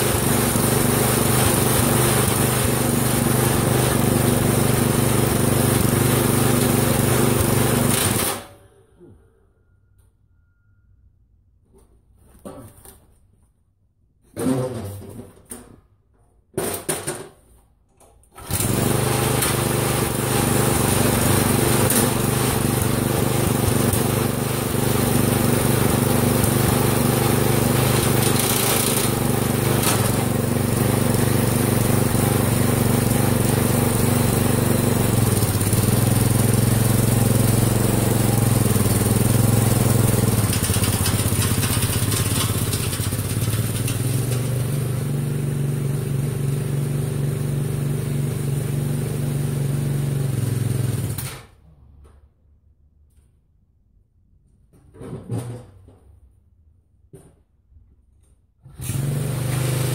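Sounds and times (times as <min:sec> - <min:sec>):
small engine starting and running: 0:00.0 - 0:08.8, 0:18.3 - 0:51.6, 0:58.6 - 0:59.9.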